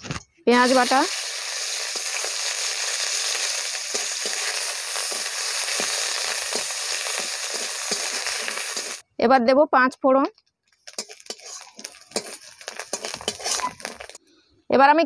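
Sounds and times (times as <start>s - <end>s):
onion paste sizzling in oil: 0.5s - 9.0s, 10.8s - 14.2s
metal spatula scraping pan: 10.9s - 14.2s.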